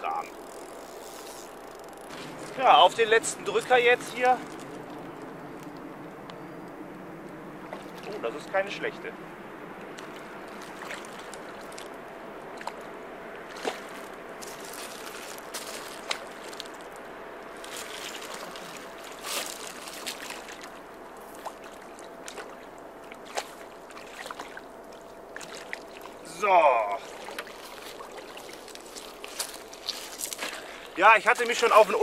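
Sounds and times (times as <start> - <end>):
fish splashing at water surface: 9.9 - 17.0, 17.6 - 26.2.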